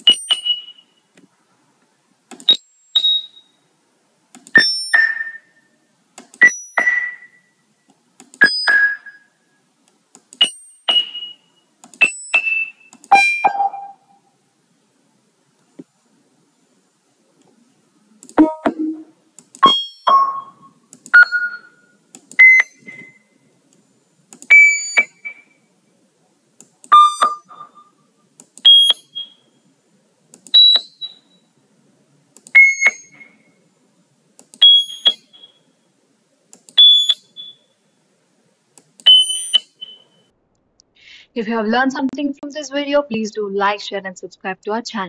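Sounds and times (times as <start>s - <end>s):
sine-wave beeps: 0.0s - 1.1s, 2.4s - 3.7s, 4.6s - 5.8s, 6.4s - 7.8s, 8.4s - 9.6s, 10.4s - 14.3s, 18.4s - 23.5s, 24.5s - 25.7s, 26.9s - 29.6s, 30.6s - 31.5s, 32.6s - 33.6s, 34.6s - 35.9s, 36.8s - 38.0s, 39.0s - 40.3s
clicks: 0.0s - 3.1s, 4.3s - 5.4s, 6.2s - 9.2s, 9.8s - 13.2s, 18.2s - 25.5s, 26.6s - 27.8s, 28.4s - 29.3s, 30.3s - 31.2s, 32.4s - 33.4s, 34.4s - 35.6s, 36.5s - 37.6s, 38.7s - 40.9s.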